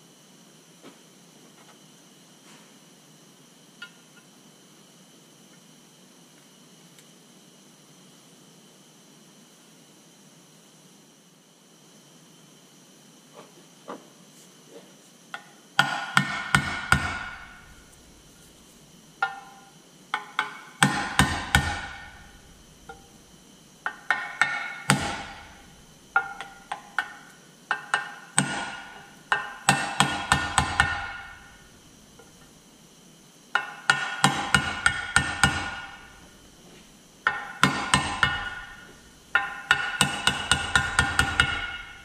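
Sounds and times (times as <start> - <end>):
hammer striking steel driver: 26.2 - 31.5, 33.6 - 36.2, 37.2 - 42.0.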